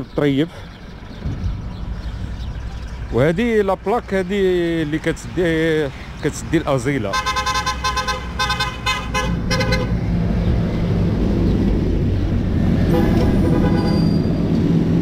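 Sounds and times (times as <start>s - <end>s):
road traffic engine rumble: 0.0s - 15.0s
vehicle horn short blasts: 12.9s - 14.1s.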